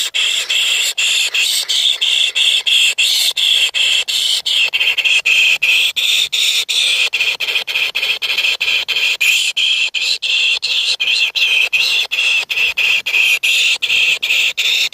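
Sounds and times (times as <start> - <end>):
nestlings begging squeals: 0.0 - 4.7.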